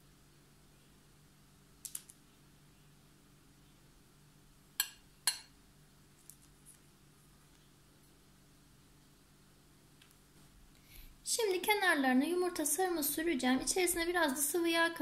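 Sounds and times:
metal spoon clinking glass bowl: 4.8s - 5.5s.

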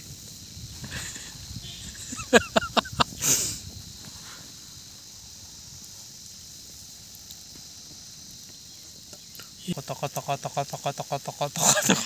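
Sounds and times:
low steady hiss: 0.0s - 12.0s
faint ticks: 3.1s - 11.6s.

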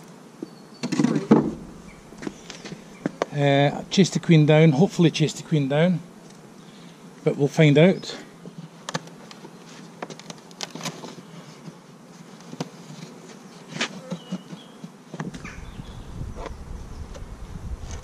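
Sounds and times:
honeybees buzzing: 0.0s - 18.0s.

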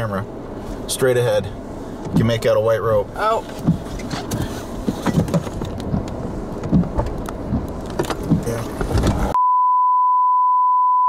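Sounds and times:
vehicle rumble: 0.0s - 9.4s
wind: 0.0s - 9.4s
taps and knocks: 3.6s - 9.2s
steady electronic beep tone: 9.4s - 11.0s.

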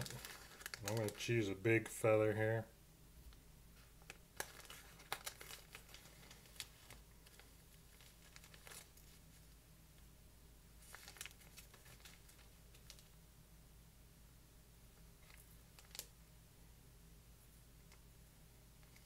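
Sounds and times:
feathers crinkling and rustling: 0.0s - 1.5s, 4.4s - 9.5s, 10.8s - 13.1s.

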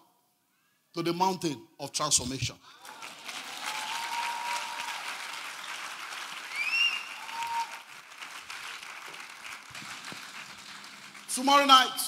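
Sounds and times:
congregation applauding: 2.7s - 12.0s.

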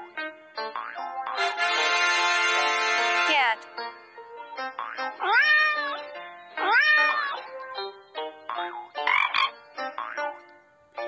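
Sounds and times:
cheerful children's music: 0.0s - 11.0s
cartoon animal calls: 4.8s - 7.5s, 8.5s - 10.4s.

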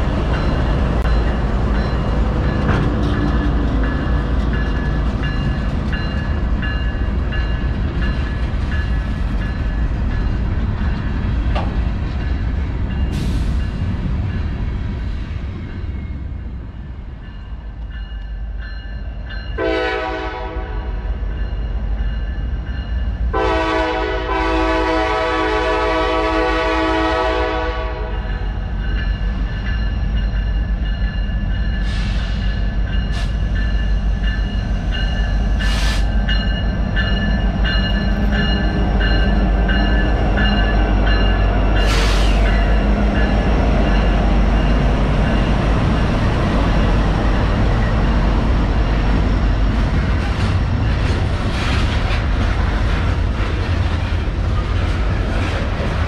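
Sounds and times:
freight train rumbling on rails: 0.0s - 56.0s
locomotive air horn: 19.6s - 20.9s, 23.4s - 28.2s.

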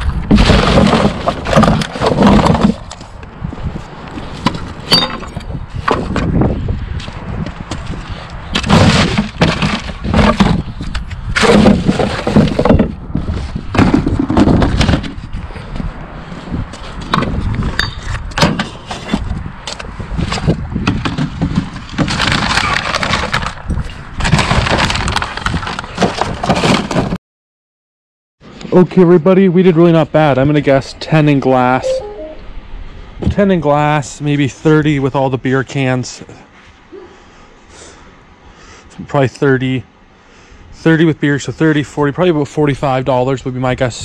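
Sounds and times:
cans and bottles clattering: 0.3s - 2.8s.

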